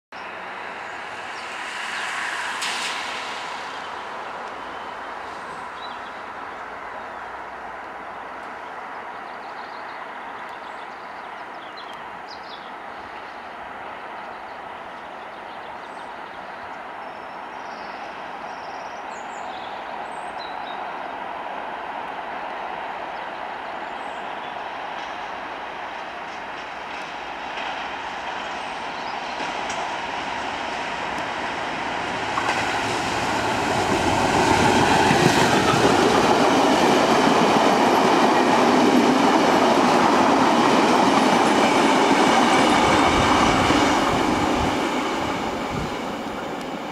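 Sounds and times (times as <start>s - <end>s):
distant diesel locomotive approaching: 0.1s - 46.9s
diesel locomotive running: 26.3s - 46.9s.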